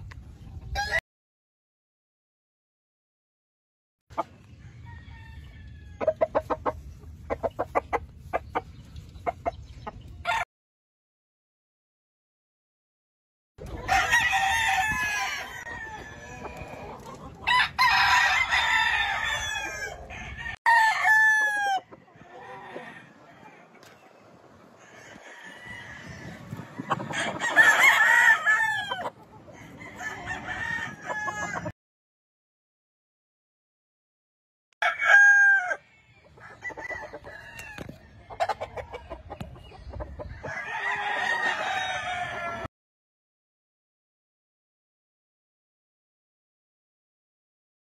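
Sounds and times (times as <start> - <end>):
chicken clucking: 4.1 - 10.3, 13.6 - 14.2, 15.5 - 17.8, 21.8 - 28.0, 28.7 - 31.7, 36.0 - 42.7
rooster crowing: 4.6 - 6.1, 13.9 - 16.8, 17.5 - 23.6, 24.8 - 26.5, 27.1 - 31.7, 34.8 - 38.6, 40.4 - 42.7.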